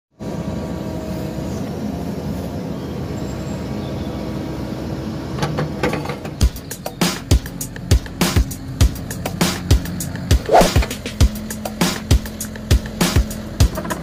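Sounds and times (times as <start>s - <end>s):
excavator diesel engine running: 0.2s - 14.0s
percussive background music: 6.4s - 14.0s.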